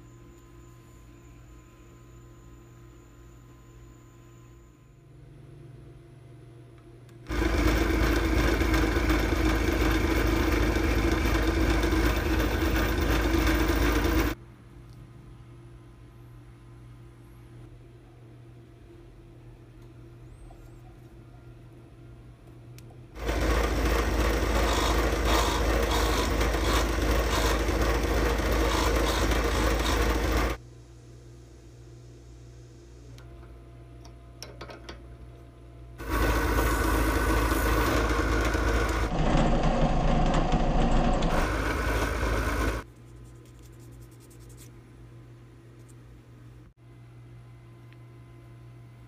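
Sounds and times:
drill press motor running: 7.3s - 14.4s, 23.2s - 30.6s, 36.0s - 42.8s.

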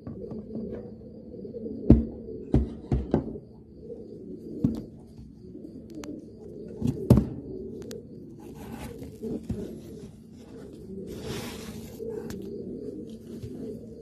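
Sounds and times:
pigeon cooing: 0.0s - 14.0s.

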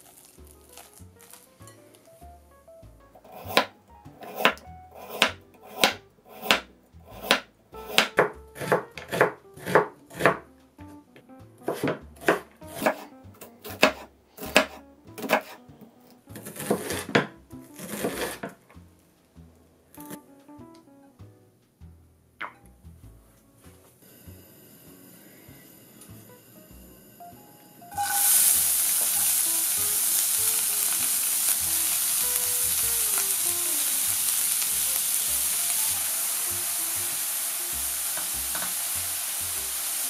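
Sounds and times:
soft background music: 0.0s - 40.0s
knife chopping on wooden board: 3.4s - 10.4s, 11.6s - 15.6s, 16.4s - 18.5s.

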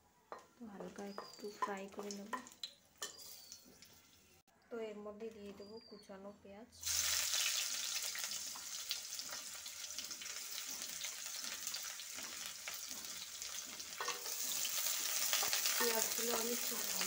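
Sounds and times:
oil crackles: 6.8s - 17.0s
onions sizzling in hot oil: 6.8s - 17.0s.

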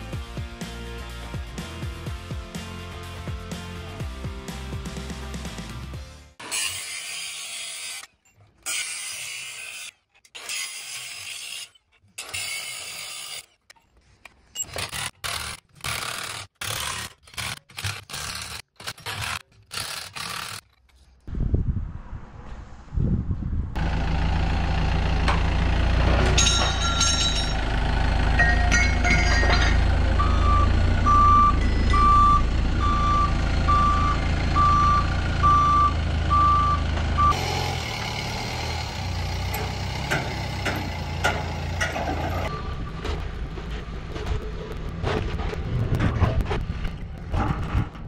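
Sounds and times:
forklift engine running: 23.7s - 46.0s
metal clanks: 26.1s - 27.7s, 28.4s - 30.2s, 39.5s - 48.0s
reversing alarm beeping: 28.4s - 37.5s, 42.4s - 43.1s.

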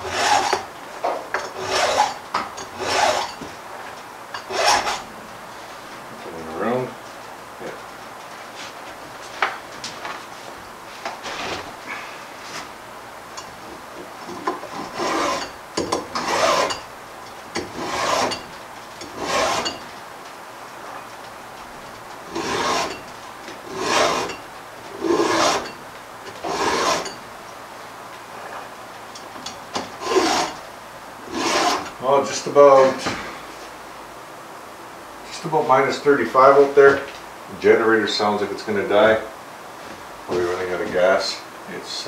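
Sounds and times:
file rasping on chainsaw chain: 0.0s - 0.7s, 1.4s - 3.4s, 4.4s - 5.0s, 14.7s - 16.8s, 17.6s - 19.8s, 22.3s - 23.0s, 23.7s - 24.4s, 25.0s - 25.8s, 26.4s - 27.2s, 30.0s - 30.6s, 31.3s - 32.0s.

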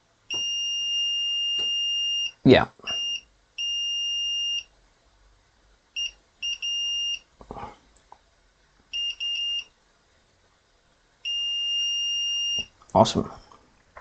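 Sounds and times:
multimeter continuity beeps: 0.3s - 4.7s, 6.0s - 7.3s, 8.9s - 9.8s, 11.2s - 12.8s.

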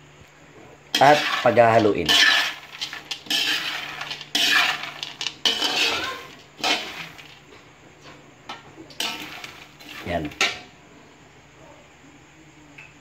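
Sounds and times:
metal spatula scraping a pan: 0.9s - 7.4s, 8.9s - 10.7s
nuts rattling against metal: 1.0s - 7.5s.

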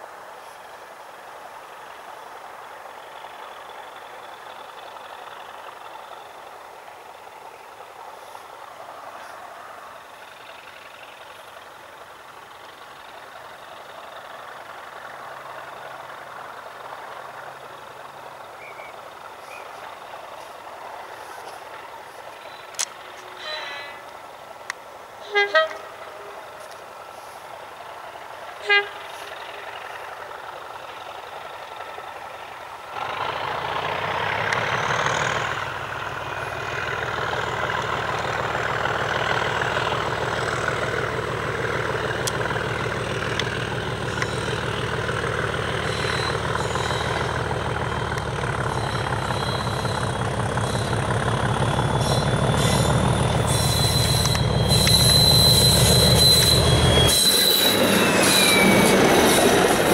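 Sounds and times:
diesel locomotive engine throbbing: 0.1s - 59.9s
rising whistle: 37.4s - 59.9s.

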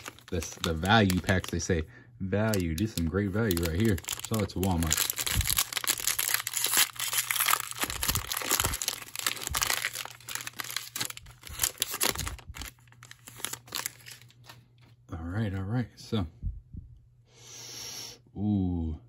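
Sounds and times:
plastic wrapper crinkling and tearing: 0.0s - 1.8s, 2.4s - 14.9s.

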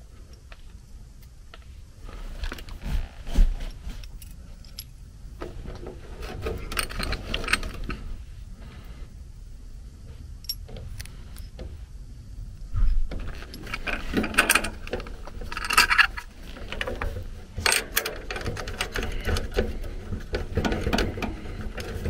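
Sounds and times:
light metallic clicks and rustling: 3.6s - 8.1s, 13.0s - 22.0s.

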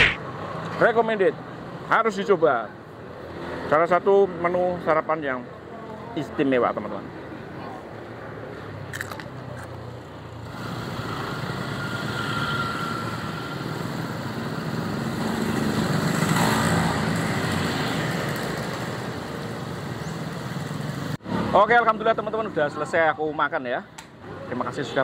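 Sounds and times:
motorcycles riding past: 10.4s - 21.8s.

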